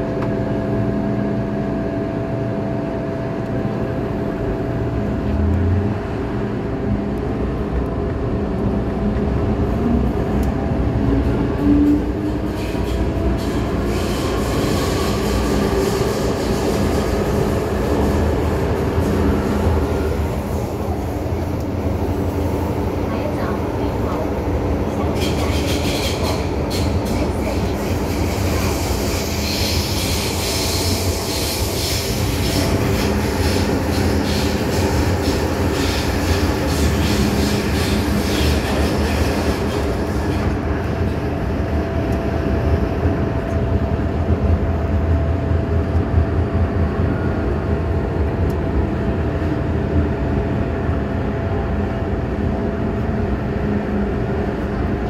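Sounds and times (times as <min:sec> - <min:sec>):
steady train whine: 0:00.0 - 0:55.0
train wheel and rail rumble: 0:00.0 - 0:55.0
train hiss: 0:24.9 - 0:40.5.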